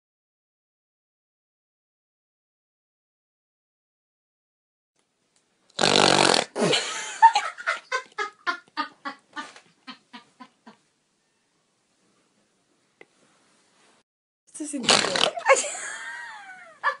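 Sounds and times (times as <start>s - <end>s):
woman laughing loudly: 6.6s - 10.8s, 15.3s - 17.0s.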